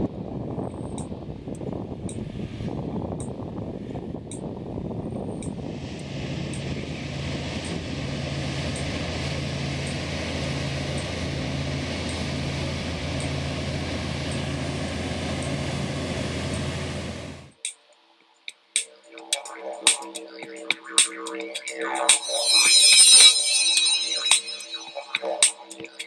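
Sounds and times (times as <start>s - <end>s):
tyre and air noise: 0.0s - 9.8s
diesel trucks droning past: 5.8s - 17.5s.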